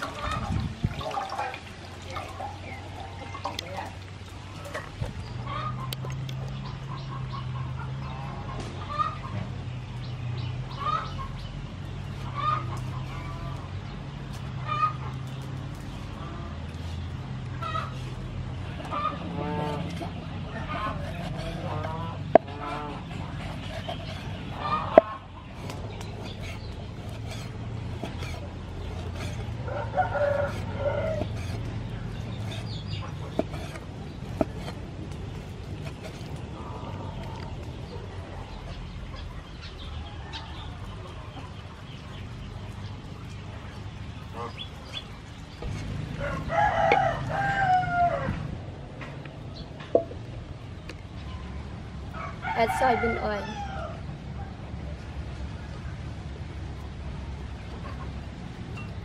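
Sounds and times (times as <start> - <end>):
chickens clucking: 0.0 - 9.6, 10.6 - 54.6, 57.6 - 59.0
steady low hum: 9.5 - 52.4
rooster crowing: 29.6 - 31.2, 46.1 - 48.5, 52.2 - 54.0
cleaver chopping on wooden board: 33.3 - 34.8.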